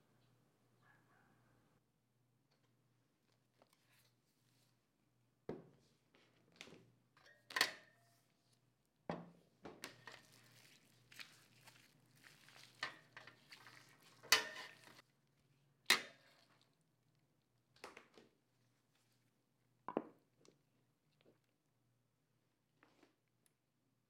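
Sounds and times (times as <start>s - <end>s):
soft rustling and handling: 2.5s - 5.1s, 9.6s - 15.6s.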